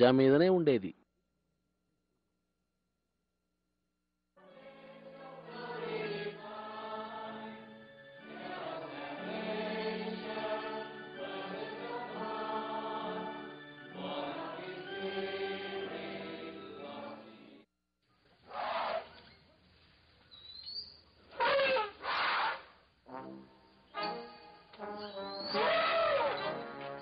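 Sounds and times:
congregation singing a hymn: 4.4s - 17.6s.

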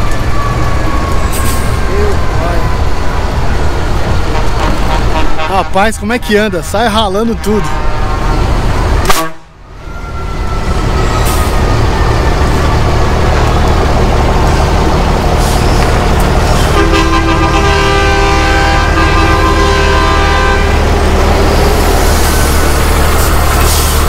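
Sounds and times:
diesel truck engine rumbling: 0.0s - 24.0s
truck air horn: 4.2s - 6.0s, 7.2s - 8.4s, 9.0s - 11.6s, 16.4s - 21.0s.

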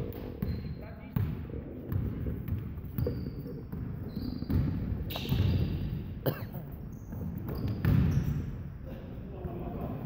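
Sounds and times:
basketball bouncing on wooden floor: 0.4s - 5.8s, 7.1s - 8.2s.

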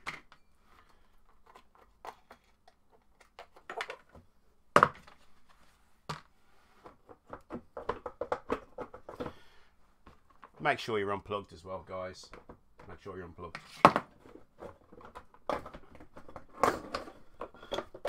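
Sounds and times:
plastic covers knocking and clicking: 1.4s - 5.3s, 6.0s - 10.6s, 12.3s - 18.0s.

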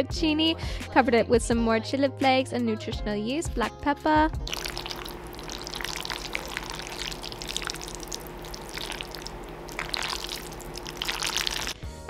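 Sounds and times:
water running: 4.5s - 11.8s.

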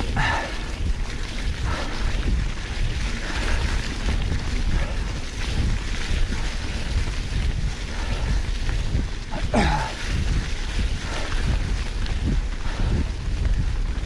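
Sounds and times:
bike tyres rolling over dry leaves: 0.0s - 14.0s
wind buffeting microphone: 0.0s - 14.0s.

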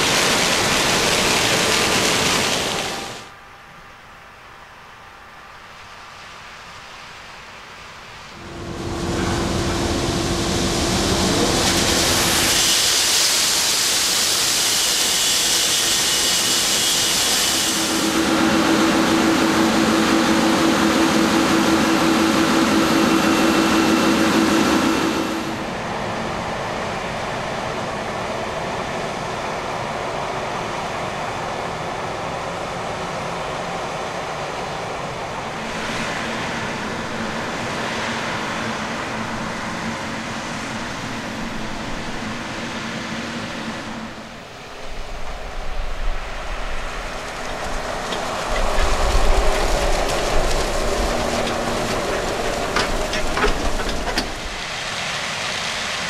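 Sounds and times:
harvest machinery running: 0.0s - 3.3s, 8.4s - 28.0s, 45.2s - 56.0s
loud rushing hiss: 0.0s - 3.3s, 5.7s - 56.0s.

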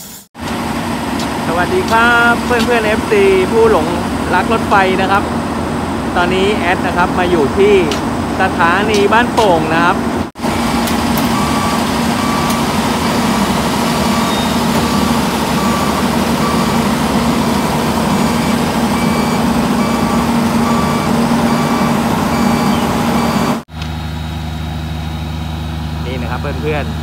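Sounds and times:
machinery drone: 0.0s - 27.0s
high electronic warning beep: 10.5s - 23.6s.

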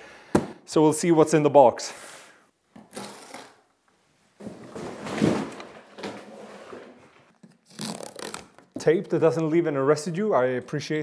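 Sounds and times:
adhesive tape ripping: 7.6s - 8.7s.

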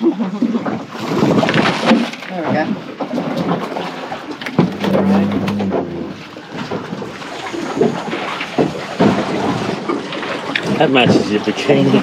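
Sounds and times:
water noise around boat: 0.0s - 12.0s
wind: 0.0s - 12.0s
knocks and clatter on deck: 4.5s - 7.2s, 8.6s - 9.8s
short low hum: 4.7s - 6.3s.

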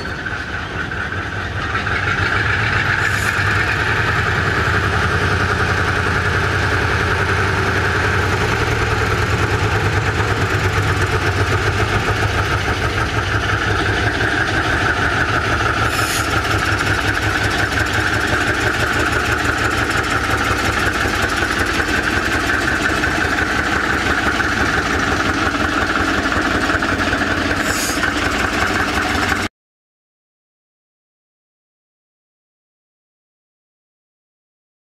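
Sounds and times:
diesel locomotive engine pulsing: 0.0s - 29.5s.

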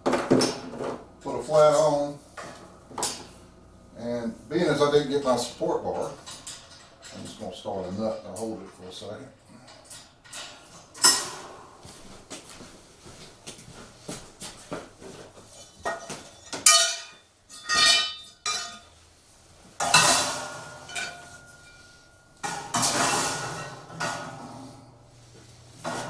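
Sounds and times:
metal parts clanking: 6.0s - 7.5s.

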